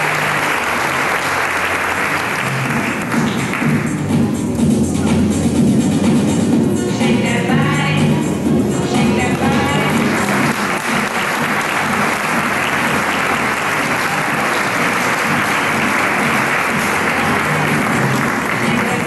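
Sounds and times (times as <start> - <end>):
audience applauding: 0.0 - 3.9, 9.8 - 19.0
music playing: 0.0 - 19.0.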